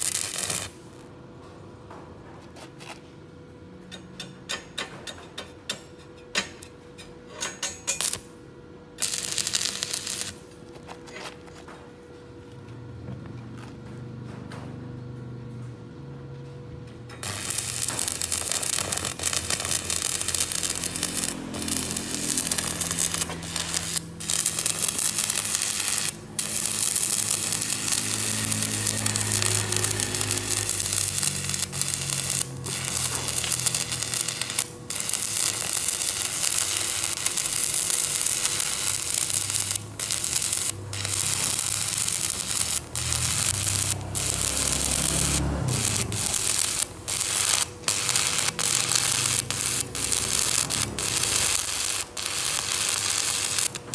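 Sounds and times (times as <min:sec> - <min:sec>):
welding arc crackling: 0:00.0 - 0:01.1, 0:07.6 - 0:08.3, 0:09.0 - 0:10.6, 0:17.2 - 0:53.9.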